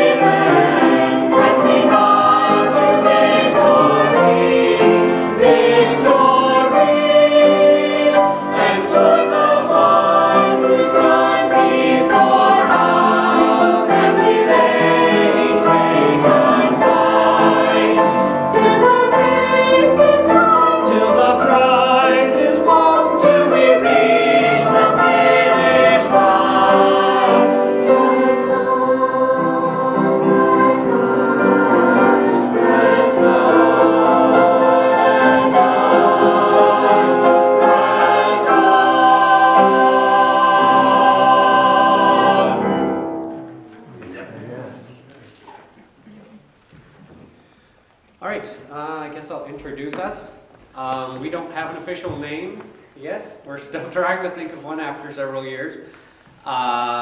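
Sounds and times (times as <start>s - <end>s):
choir singing a hymn: 0.0s - 43.7s.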